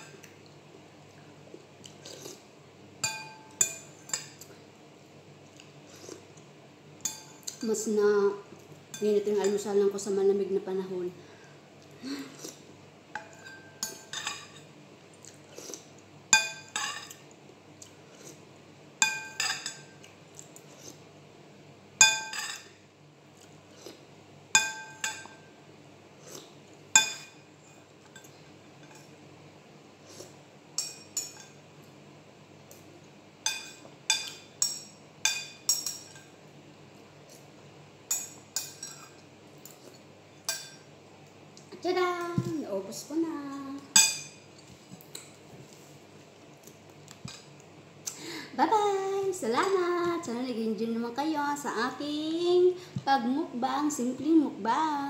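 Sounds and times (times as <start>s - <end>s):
metal spoon clinking ceramic bowl: 3.0s - 4.4s, 22.0s - 22.7s.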